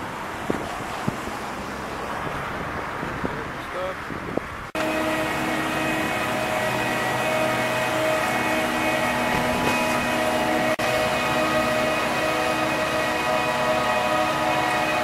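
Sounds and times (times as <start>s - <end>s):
boat engine running: 4.7s - 15.0s.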